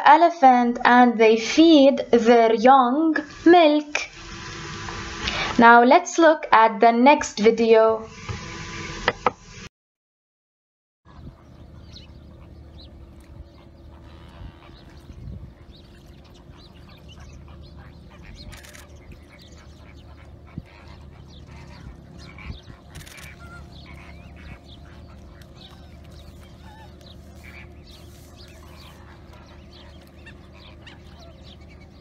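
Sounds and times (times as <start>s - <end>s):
low hum: 1.2s - 5.9s, 11.1s - 32.0s
birds chirping: 11.1s - 32.0s.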